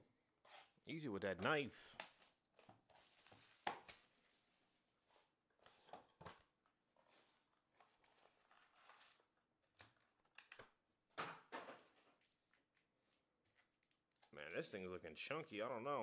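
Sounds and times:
cardboard and wrappers rustling: 1.5s - 6.2s, 6.8s - 10.2s.

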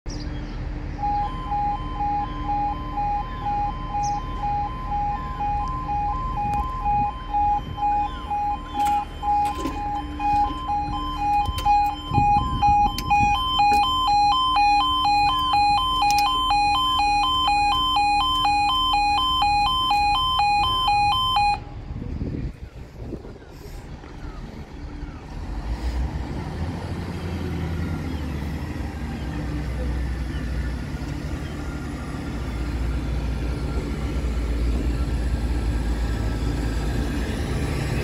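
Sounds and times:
level crossing two-tone alarm: 1.0s - 21.6s.

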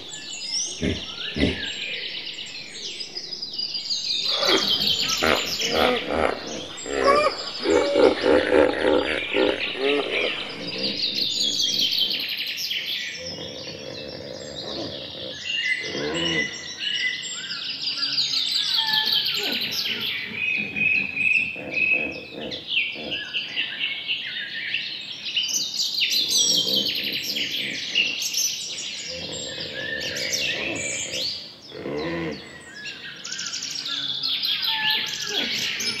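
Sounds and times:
birds chirping and singing: 0.0s - 36.0s.

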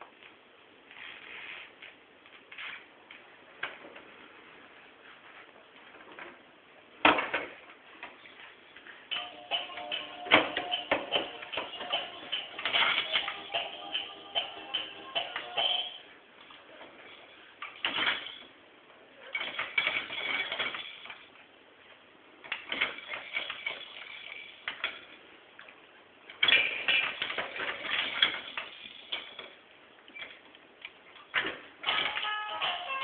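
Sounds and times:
plastic toys rattling and clacking: 9.8s - 15.9s, 16.8s - 18.5s, 19.3s - 21.3s, 22.5s - 25.2s, 26.3s - 29.6s, 31.3s - 32.9s.

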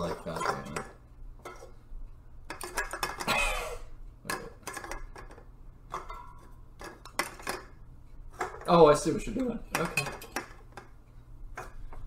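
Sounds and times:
beer cans clinking on wood: 0.0s - 1.6s, 2.5s - 3.6s, 4.2s - 7.8s, 9.7s - 10.8s.

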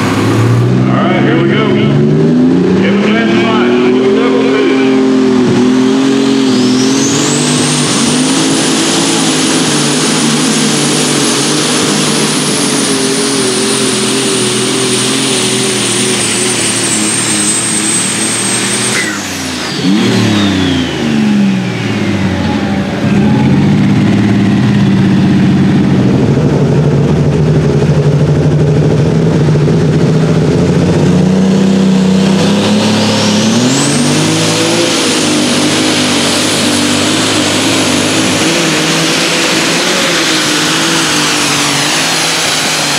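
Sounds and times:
diesel tractor engine under load: 0.0s - 42.9s
high turbo whistle: 6.1s - 9.7s, 12.2s - 23.8s.

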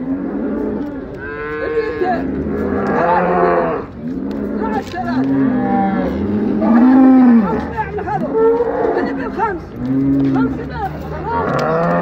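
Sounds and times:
cattle mooing: 0.0s - 10.6s.

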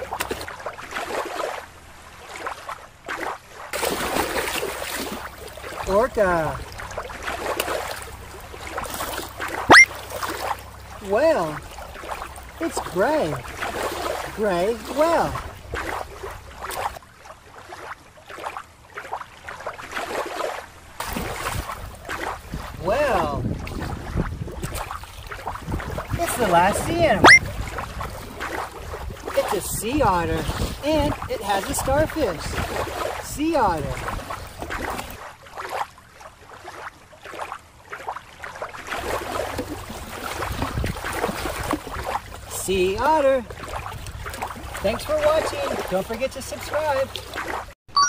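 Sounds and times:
water lapping at rocky shore: 0.0s - 47.8s
wind: 0.0s - 48.0s
sea swells rushing: 3.8s - 16.9s, 26.0s - 29.6s
hand splashing in water: 9.6s - 10.5s, 27.2s - 27.4s.

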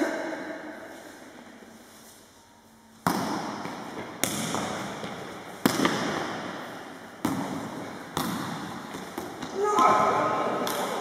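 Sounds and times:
echo in sports hall: 0.0s - 11.0s.

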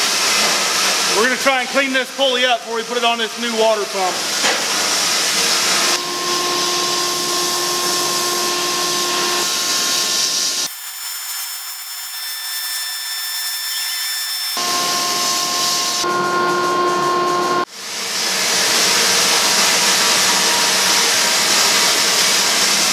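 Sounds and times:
steady hum: 5.2s - 10.7s.

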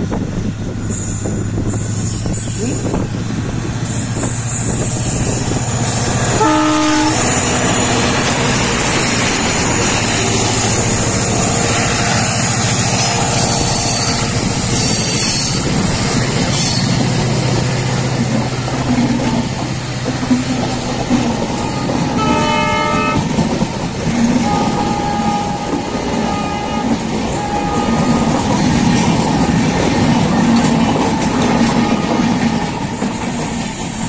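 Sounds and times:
coach wheels on rails: 0.0s - 34.0s
diesel locomotive engine drone: 0.0s - 34.0s
train horn blast: 6.0s - 15.6s, 21.6s - 23.3s, 24.4s - 28.9s, 31.4s - 32.7s.

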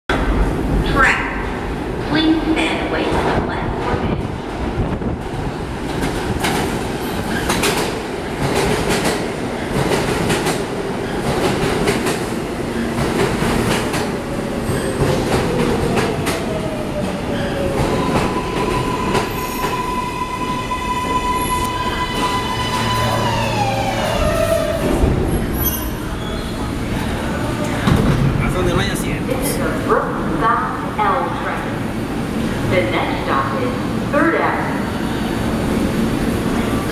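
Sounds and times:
subway train braking: 0.1s - 36.9s.

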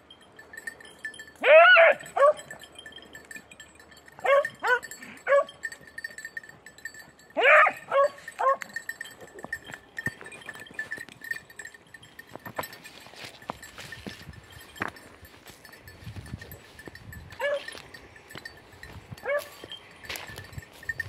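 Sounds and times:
hounds baying: 1.4s - 2.7s, 4.1s - 5.8s, 7.3s - 9.6s, 17.3s - 18.4s, 19.2s - 20.3s.

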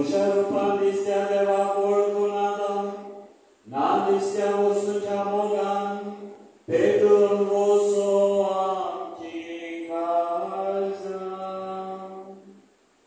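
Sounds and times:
slow liturgical chant: 0.0s - 13.0s.

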